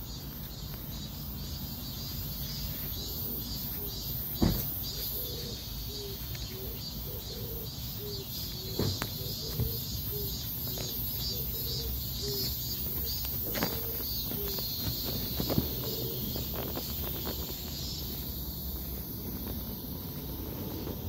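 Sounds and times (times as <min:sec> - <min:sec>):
insects chirping in pulses: 0:00.0 - 0:21.0.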